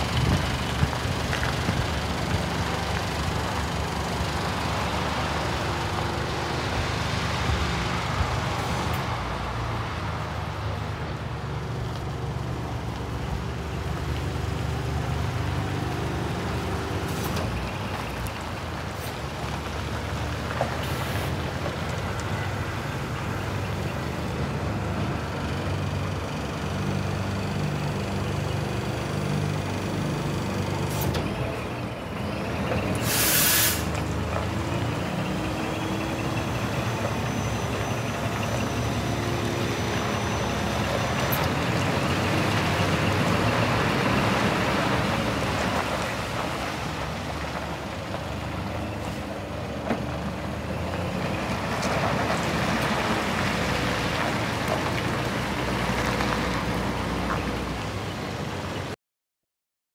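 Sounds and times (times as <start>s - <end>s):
diesel truck engine running: 0.0s - 59.0s
air brake hiss: 33.0s - 34.0s.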